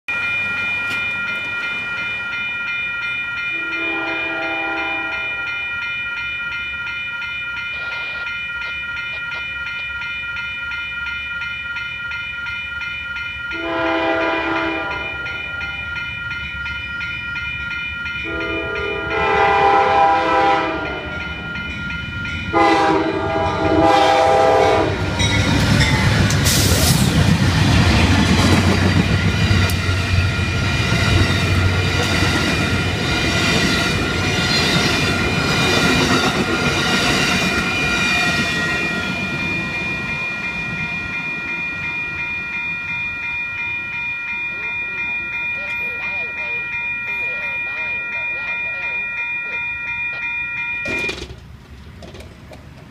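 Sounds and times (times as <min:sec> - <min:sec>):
crossing warning bells ringing: 0:00.1 - 0:52.9
train cars rattling and wheel clatter: 0:00.1 - 0:52.9
train horn blasts: 0:03.6 - 0:05.5, 0:13.5 - 0:15.4, 0:18.2 - 0:21.3, 0:22.5 - 0:25.2.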